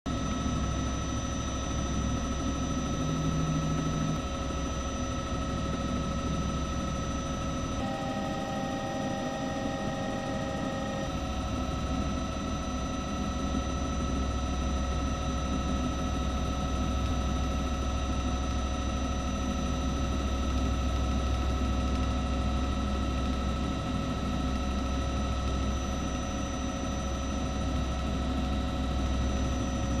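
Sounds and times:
helicopter engine and rotors: 0:00.1 - 0:30.0
whining tones: 0:05.7 - 0:13.2.

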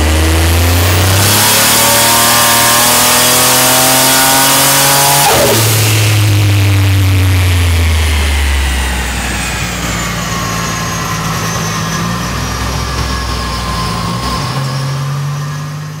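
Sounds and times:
drivetrain whine falling in pitch: 0:00.0 - 0:16.0
engine winding down to idle: 0:05.2 - 0:16.0.

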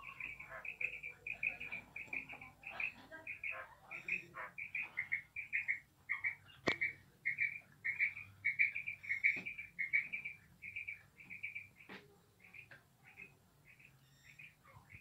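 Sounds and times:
quail chirping: 0:00.0 - 0:15.0
sharp clicks: 0:06.6 - 0:06.9.

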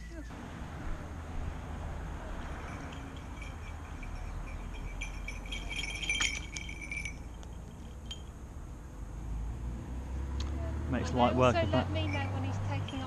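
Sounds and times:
small metal bells jingling: 0:02.4 - 0:08.4, 0:11.6 - 0:13.0.

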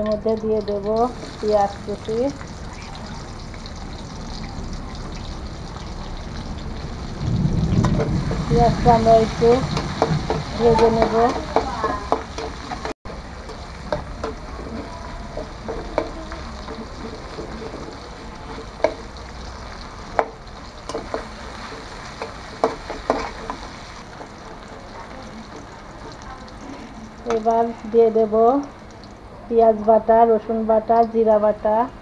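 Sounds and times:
onions sizzling in hot oil: 0:00.0 - 0:31.8
metal spatula scraping pan: 0:09.4 - 0:19.2, 0:20.2 - 0:24.8.

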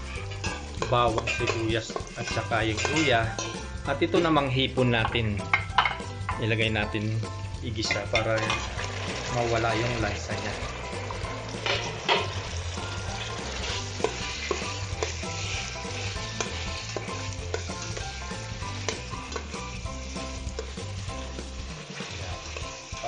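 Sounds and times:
spatula scraping a pot: 0:00.0 - 0:03.7, 0:07.9 - 0:10.0, 0:10.6 - 0:22.7
shrimp sizzling in hot oil: 0:00.0 - 0:23.0.

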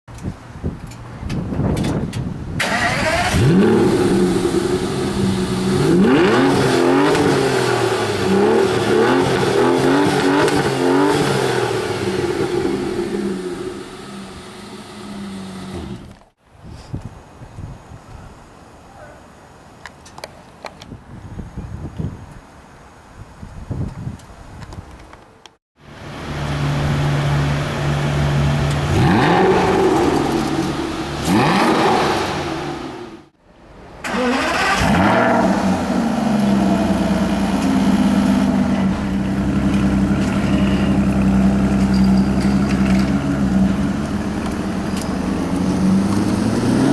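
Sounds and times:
car engine revving: 0:02.6 - 0:16.1, 0:26.0 - 0:33.3, 0:34.0 - 0:46.9.

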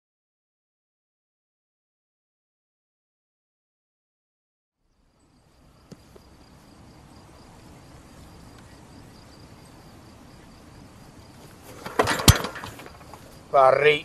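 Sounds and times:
faint steady hiss: 0:04.8 - 0:14.0
loud clattering clunk: 0:11.7 - 0:13.2.

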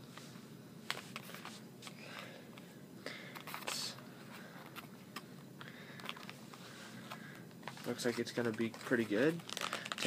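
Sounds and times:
plastic crinkle: 0:07.6 - 0:10.0
plastic packaging clicks: 0:08.5 - 0:10.0.

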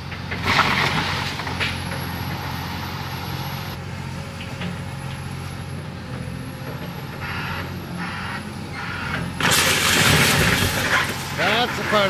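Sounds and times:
excavator diesel engine running: 0:00.0 - 0:12.0
house collapsing crash: 0:00.4 - 0:01.5, 0:09.4 - 0:12.0.

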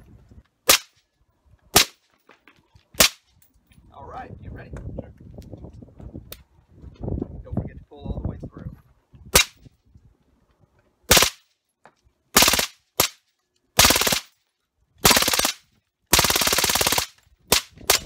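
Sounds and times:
suppressed gun firing bursts: 0:11.1 - 0:11.4, 0:12.4 - 0:13.2, 0:13.8 - 0:14.3, 0:15.0 - 0:18.0.

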